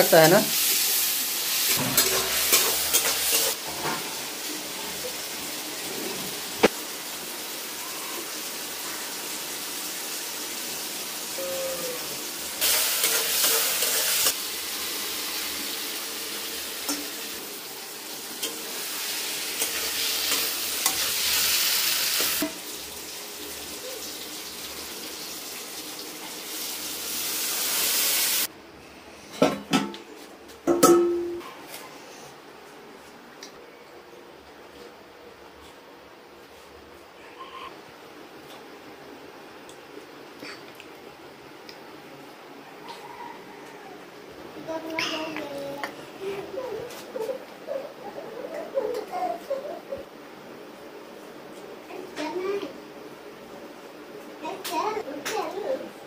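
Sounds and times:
curry frying sizzle: 0:00.0 - 0:28.5.

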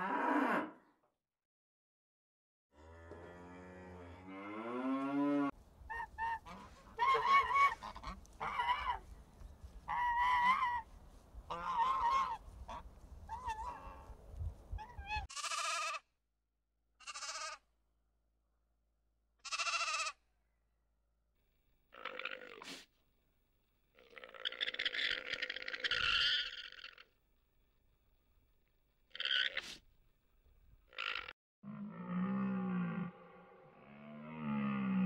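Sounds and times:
cow mooing: 0:02.7 - 0:05.5, 0:31.6 - 0:35.0
geese honking: 0:05.9 - 0:09.1, 0:09.8 - 0:14.1
sheep bleating: 0:15.3 - 0:16.0, 0:17.0 - 0:17.6, 0:19.4 - 0:20.2.

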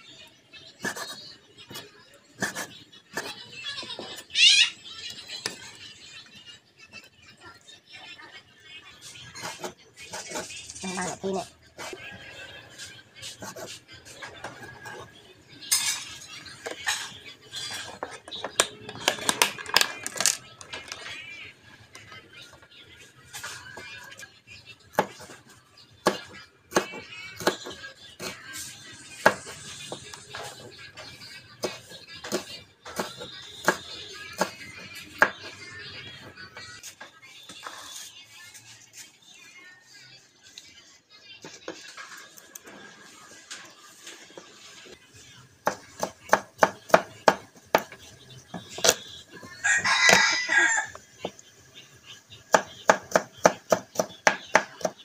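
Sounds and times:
rooster crowing: 0:49.6 - 0:51.0.

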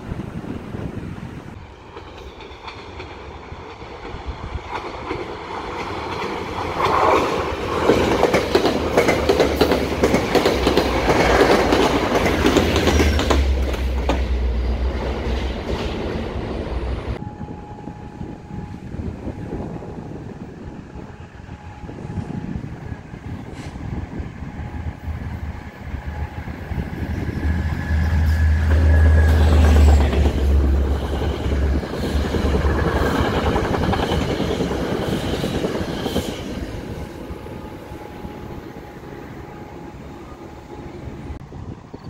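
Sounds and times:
low diesel locomotive drone: 0:00.0 - 0:42.0
train wheels clattering over rail joints: 0:01.9 - 0:16.2, 0:28.1 - 0:36.8.

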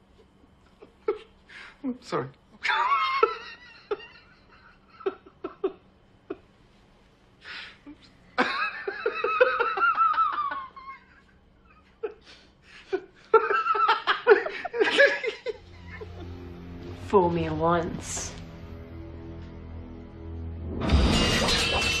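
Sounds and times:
person laughing loudly: 0:08.4 - 0:11.3, 0:11.9 - 0:16.3.

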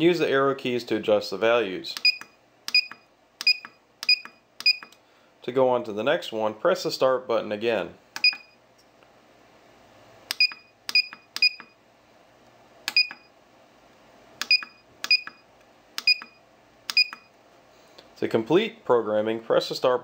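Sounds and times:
short high beeps: 0:02.0 - 0:04.9, 0:08.2 - 0:08.6, 0:10.4 - 0:11.8, 0:12.9 - 0:13.3, 0:16.1 - 0:17.3.

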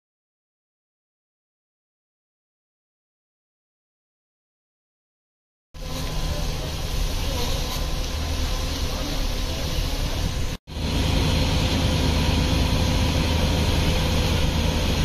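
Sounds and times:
fire truck engines running: 0:05.8 - 0:15.0.

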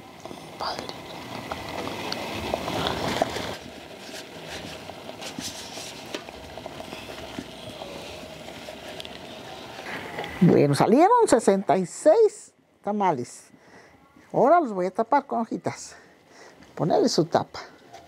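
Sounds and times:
dry corn husks rustling: 0:01.4 - 0:10.2.

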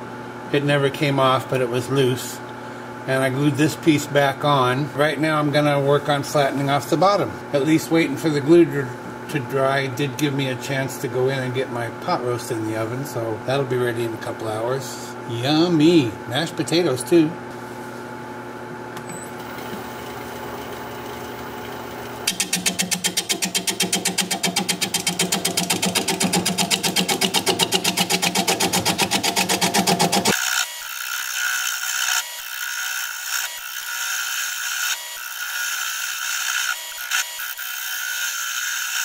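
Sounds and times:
wood lathe humming: 0:19.4 - 0:39.0
gouge scraping wood: 0:22.4 - 0:30.3.

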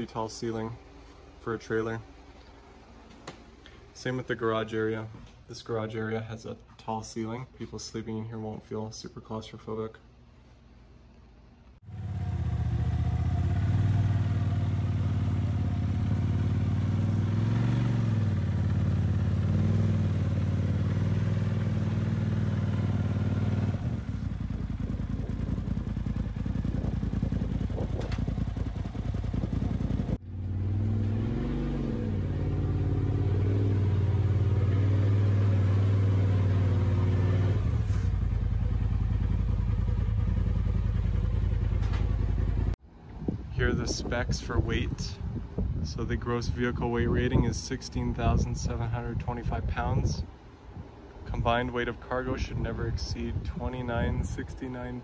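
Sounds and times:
vehicle engine running with revs: 0:11.8 - 0:42.8.

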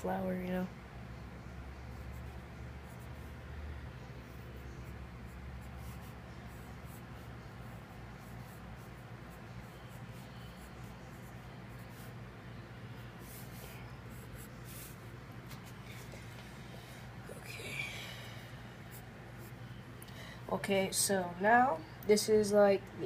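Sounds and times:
steady low hum: 0:00.0 - 0:23.0
pencil scratching on paper: 0:01.9 - 0:03.4, 0:04.1 - 0:12.3, 0:12.9 - 0:16.2.

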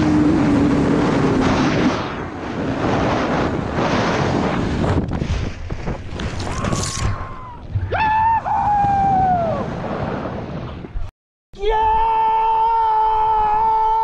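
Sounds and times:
wind rushing over microphone: 0:00.0 - 0:11.1
person yelling: 0:11.6 - 0:14.0.

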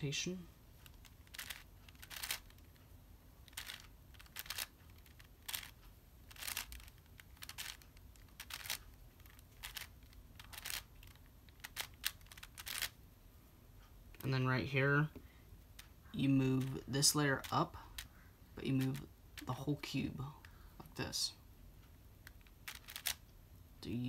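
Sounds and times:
puzzle cube plastic clicks: 0:00.8 - 0:02.8, 0:03.4 - 0:13.0, 0:16.6 - 0:19.6, 0:22.2 - 0:23.3.

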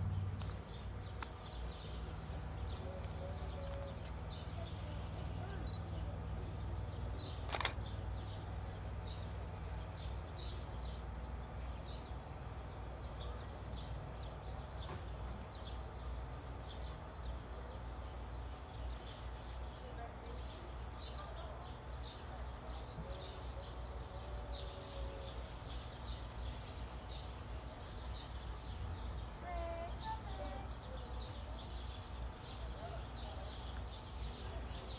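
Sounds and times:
low steady rumble: 0:00.0 - 0:06.9
insects chirping: 0:00.0 - 0:34.9
sharp click: 0:07.4 - 0:07.9.

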